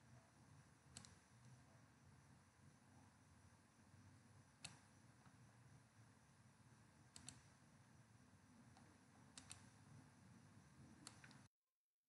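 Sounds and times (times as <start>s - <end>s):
faint computer mouse clicks: 0.9s - 1.5s, 4.6s - 4.9s, 7.1s - 7.5s, 8.8s - 9.8s, 11.0s - 11.5s.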